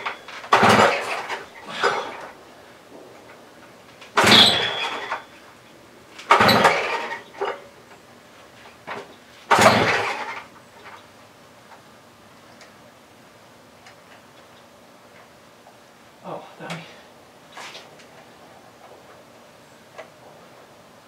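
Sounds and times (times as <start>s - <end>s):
recoil starter yanks: 0.0s - 3.4s, 4.0s - 5.4s, 6.2s - 7.7s, 8.8s - 11.0s.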